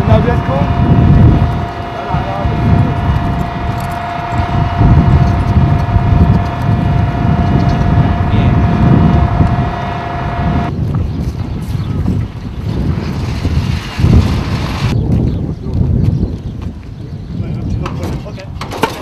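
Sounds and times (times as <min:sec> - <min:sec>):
diesel engines idling: 0:00.0 - 0:10.7
steady high whine: 0:00.0 - 0:10.7
wind buffeting microphone: 0:00.0 - 0:19.0.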